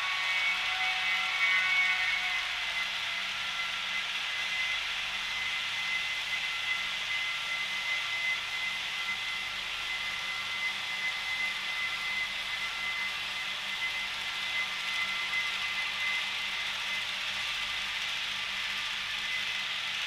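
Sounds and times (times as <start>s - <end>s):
model train motors whirring: 0.0s - 20.0s
thin steady whine: 0.0s - 20.0s.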